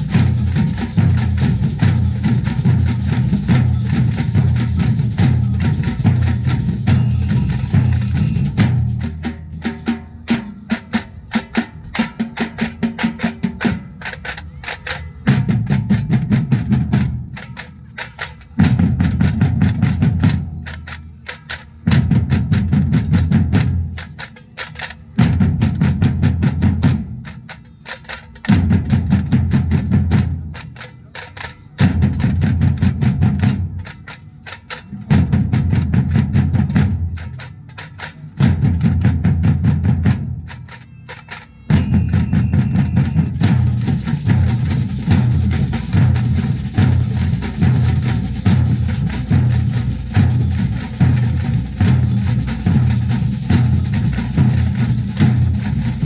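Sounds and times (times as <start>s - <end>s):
deep drums pounding: 0.0s - 10.0s, 21.8s - 24.0s, 35.1s - 37.4s, 38.4s - 40.5s, 41.8s - 56.0s
drumming group playing: 0.0s - 56.0s.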